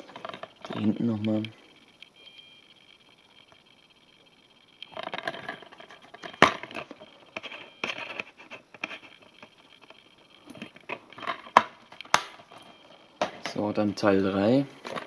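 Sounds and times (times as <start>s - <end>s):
plastic case rustling: 0.0s - 1.1s, 4.9s - 14.0s, 14.8s - 15.0s.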